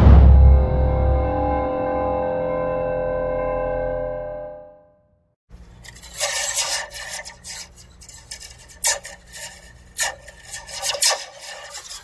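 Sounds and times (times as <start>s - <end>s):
metal slinky scraping plastic cup: 5.6s - 12.0s.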